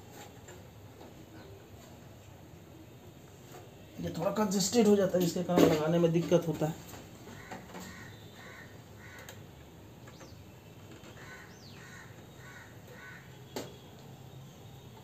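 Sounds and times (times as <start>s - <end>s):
crow cawing: 7.3s - 9.4s, 11.2s - 13.4s.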